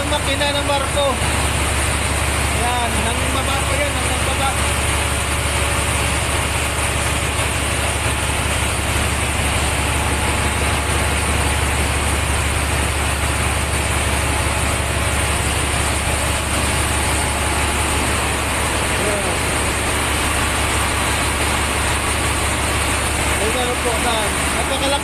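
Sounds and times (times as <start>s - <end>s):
diesel generator humming: 0.0s - 25.0s.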